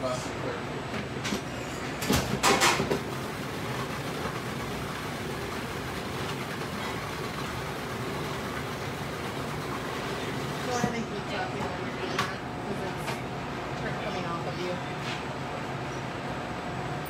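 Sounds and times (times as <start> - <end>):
food processor motor running: 3.0 - 10.8.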